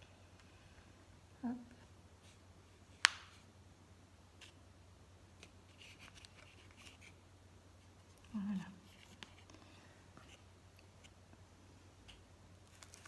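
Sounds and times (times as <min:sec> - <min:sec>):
soil and plastic pot rustling: 0:12.1 - 0:13.0.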